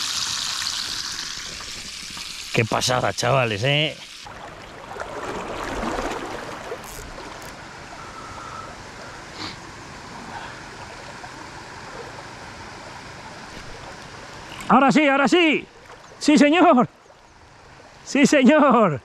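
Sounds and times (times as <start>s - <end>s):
river water rushing: 4.2s - 9.4s.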